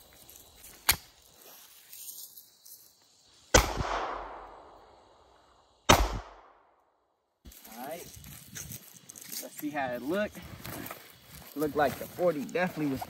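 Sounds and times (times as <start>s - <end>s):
pistol shots with echo: 3.5s - 4.6s, 5.9s - 6.6s.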